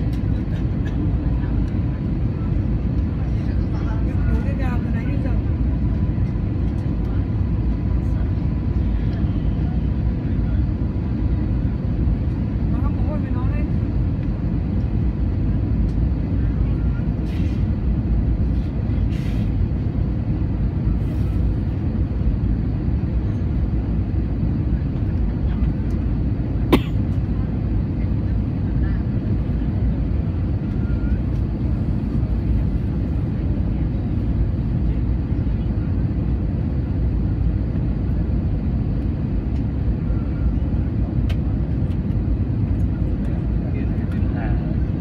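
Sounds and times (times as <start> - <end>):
airliner cabin jet engine rumble: 0.0 - 45.0.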